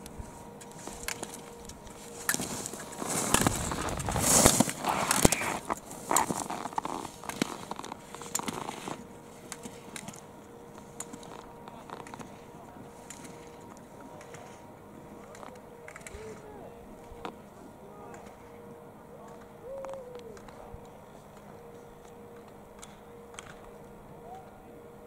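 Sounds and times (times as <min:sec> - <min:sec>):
skis scraping across snow: 0:00.2 - 0:09.9.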